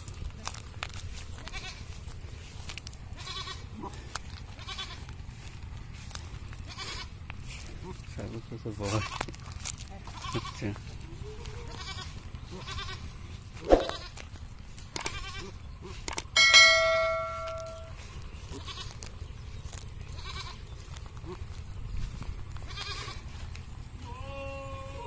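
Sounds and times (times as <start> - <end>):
goat bleating: 1.1 - 5.7, 6.4 - 8.1, 8.8 - 19.0, 20.0 - 21.6, 22.5 - 25.0
bell ringing: 16.4 - 18.0.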